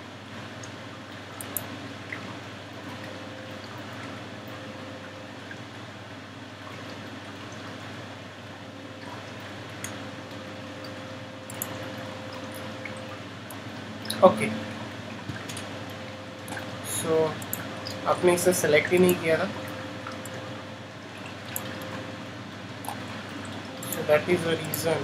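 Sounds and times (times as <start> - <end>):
faint low hum: 0.6 - 25.0
computer mouse clicks: 1.4 - 1.7, 11.5 - 11.8.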